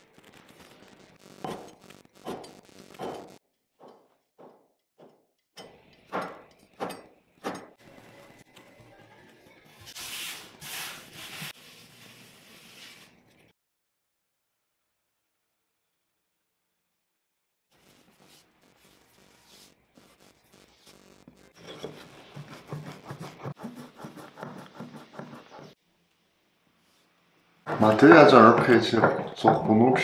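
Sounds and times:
hands rubbing dough on board: 0:09.9 - 0:13.2, 0:21.8 - 0:25.8
knife chopping on cutting board: 0:21.8 - 0:25.7.

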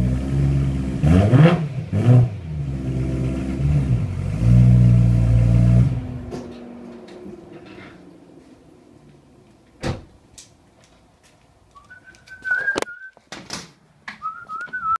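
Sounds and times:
car door shutting: 0:09.8 - 0:10.2
wavering high whistle: 0:11.8 - 0:13.2, 0:14.2 - 0:15.0
sharp knocks and handling noise: 0:12.2 - 0:14.9.

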